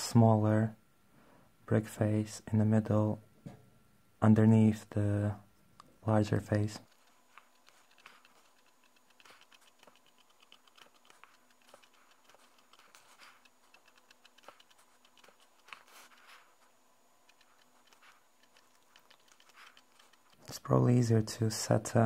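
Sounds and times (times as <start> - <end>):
pencil scratching on paper: 6.5 - 20.6.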